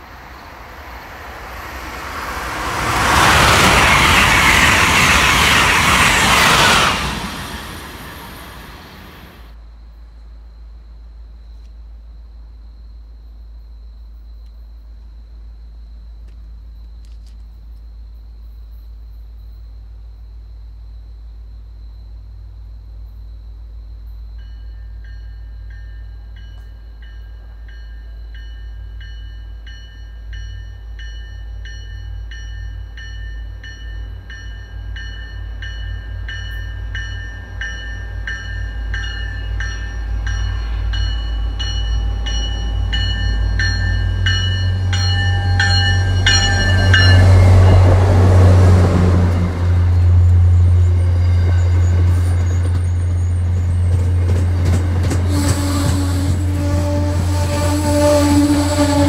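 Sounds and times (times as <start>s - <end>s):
train coaches rumbling on rails: 0.0s - 9.6s, 24.3s - 59.0s
train bell ringing: 24.4s - 48.2s, 49.3s - 55.0s.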